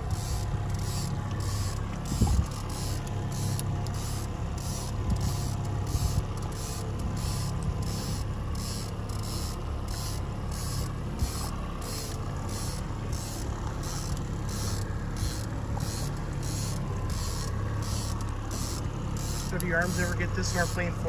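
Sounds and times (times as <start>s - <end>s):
outboard motor running: 0.0s - 21.0s.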